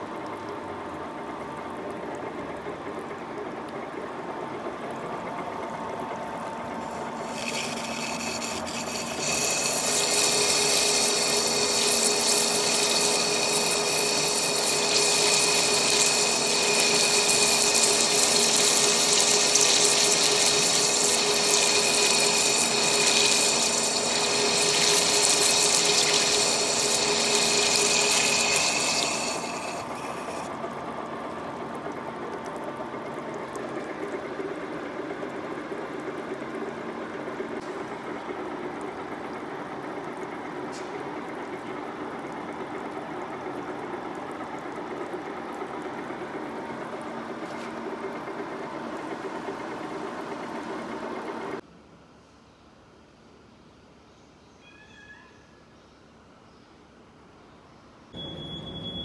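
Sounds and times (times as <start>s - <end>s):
lathe running: 6.6s - 30.5s
coolant splashing: 6.6s - 36.7s
high-pitched lathe cutting noise: 6.8s - 30.5s.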